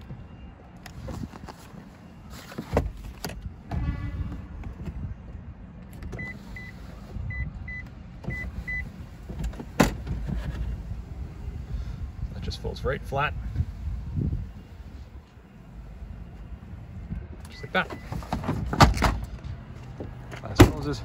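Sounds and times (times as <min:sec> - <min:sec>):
seatback clicks and clunks: 0:00.8 - 0:10.8, 0:17.2 - 0:21.0.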